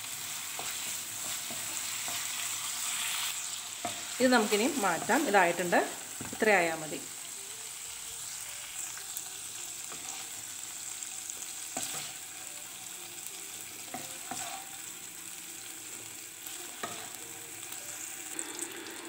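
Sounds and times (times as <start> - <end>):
chicken sizzling in a pan: 0.0 - 19.0
wooden spatula scraping and tapping: 13.9 - 14.6.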